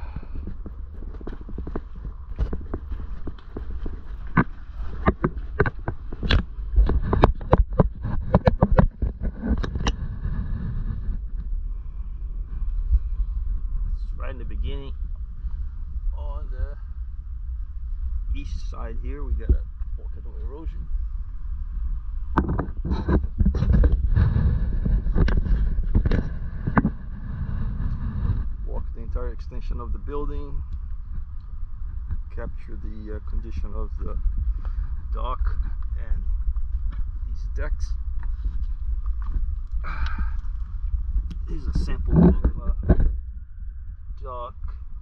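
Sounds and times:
footsteps on wooden planks: 0:00.0 - 0:11.2
wind on microphone: 0:00.0 - 0:45.0.

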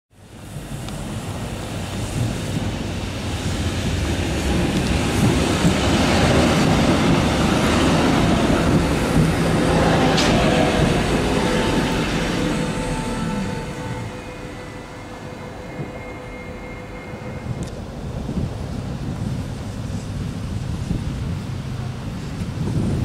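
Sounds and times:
tram wheels rumbling on rails: 0:00.2 - 0:23.0.

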